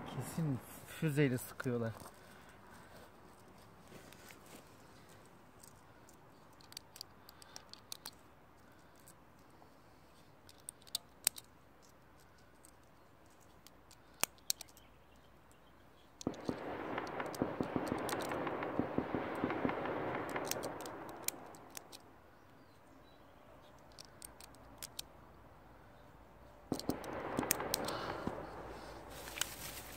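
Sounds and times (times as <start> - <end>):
distant gunfire echoing: 16.2 - 21.5, 26.7 - 29.0.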